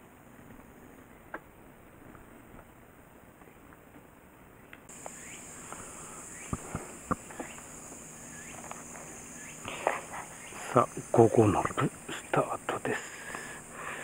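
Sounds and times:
high buzz of insects: 4.9 - 14.0
short rising bird chirps: 5.0 - 11.1.

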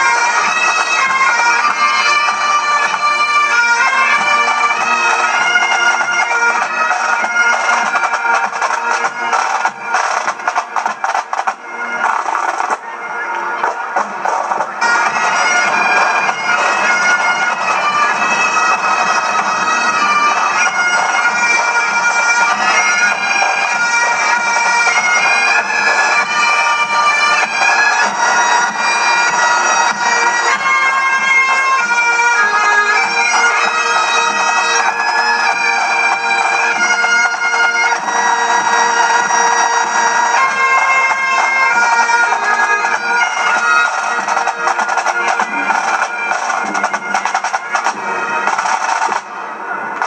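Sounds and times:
bagpipe band playing: 0.0 - 50.0.

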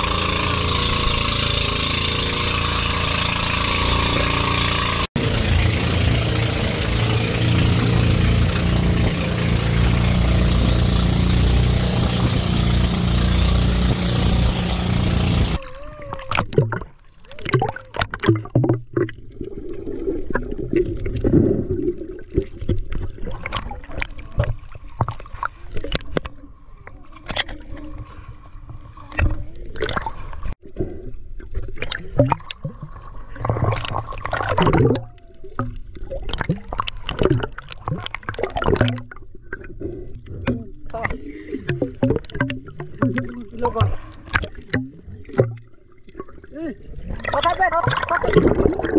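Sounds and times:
water sloshing and gurgling: 0.0 - 48.9
splashes and knocks: 16.2 - 19.3, 20.3 - 26.3, 29.1 - 30.6, 31.5 - 46.5, 47.1 - 48.9.

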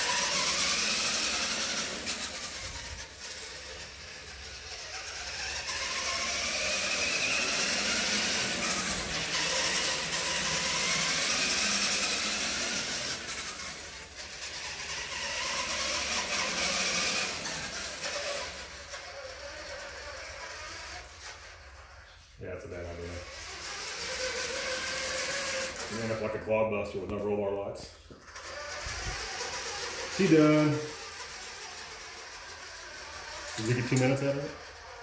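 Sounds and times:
toy truck electric motor whine: 0.0 - 26.4, 28.1 - 35.0.

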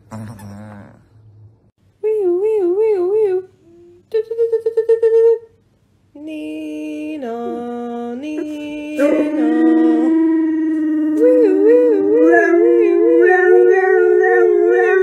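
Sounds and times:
person humming: 2.0 - 5.4, 6.2 - 15.0
dog howling: 9.0 - 15.0.

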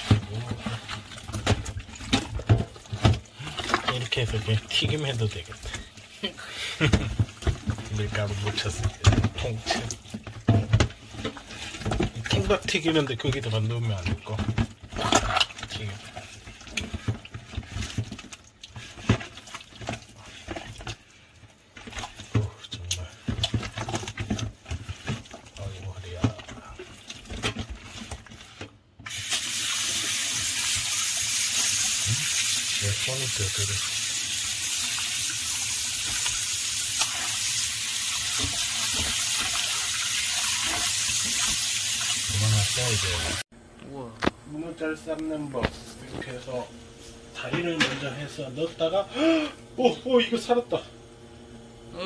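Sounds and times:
hands kneading wet octopus: 0.0 - 29.0
tap water running into basin: 0.0 - 43.5.

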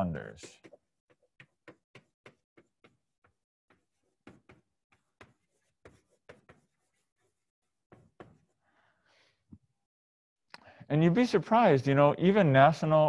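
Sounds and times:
chalk writing on chalkboard: 0.4 - 8.6.

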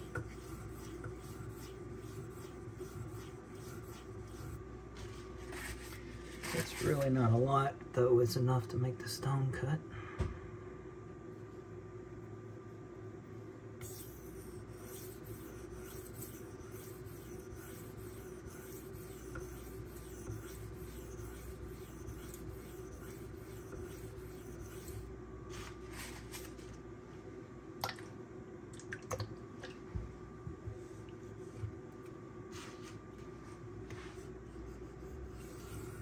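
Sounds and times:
knife scraping on whetstone: 0.0 - 4.6, 13.8 - 25.1, 34.6 - 36.0.

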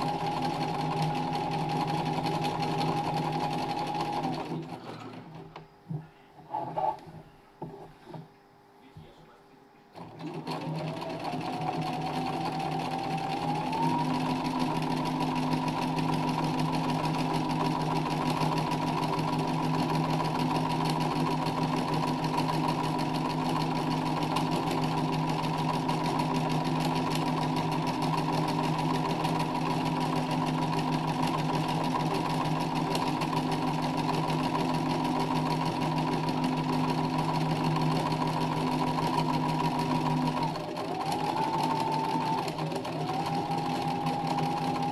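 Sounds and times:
sewing machine stitching fast: 0.0 - 5.4, 10.0 - 44.9.

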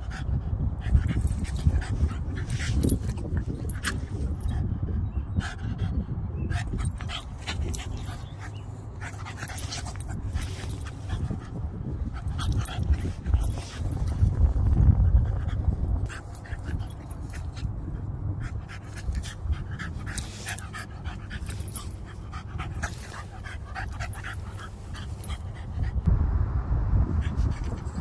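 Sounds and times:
dog panting: 5.4 - 26.1
low rumble: 6.1 - 28.0.

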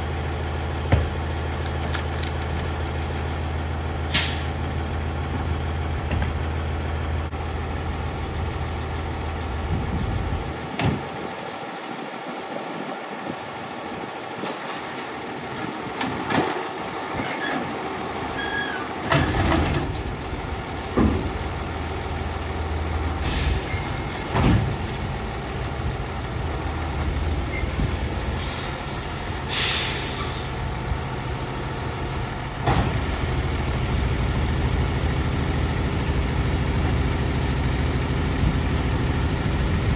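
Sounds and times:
diesel engine running: 0.0 - 39.9
cart clanks and knocks: 15.6 - 17.7, 19.0 - 20.1, 20.8 - 21.5, 24.2 - 25.0
air hiss: 28.4 - 30.5.

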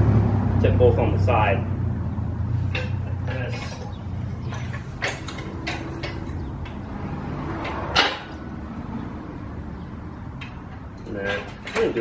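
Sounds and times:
steel frame knocking and clanking: 2.6 - 8.6, 10.3 - 12.0.

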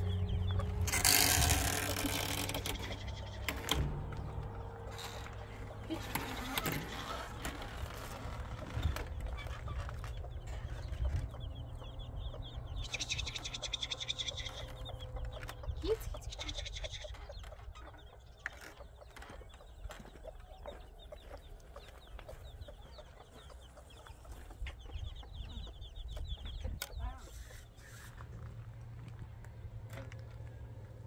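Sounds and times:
steady low rumble: 0.0 - 26.9
birds calling in high notes: 4.7 - 28.1.

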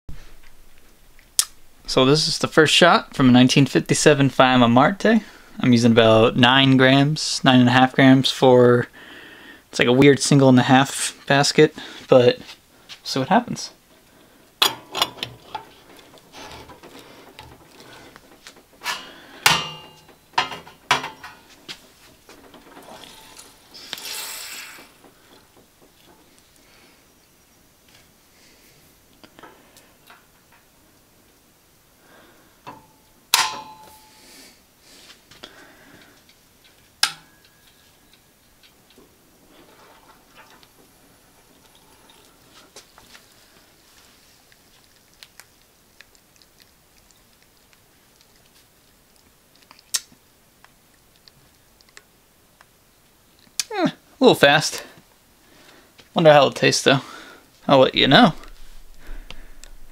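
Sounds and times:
metal clanks and clicks: 14.6 - 24.0
espresso machine hiss: 22.9 - 24.9
faint irregular ticks: 41.4 - 53.7.

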